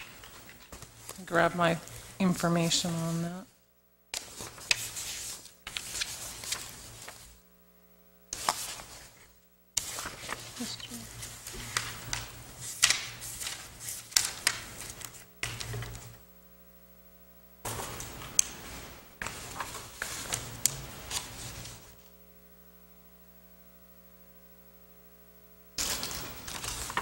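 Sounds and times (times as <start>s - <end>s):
papers rustling and shuffling: 0.0s - 2.1s, 4.2s - 7.4s, 8.3s - 16.2s, 17.7s - 22.1s, 25.8s - 27.0s
electrical hum: 0.0s - 27.0s.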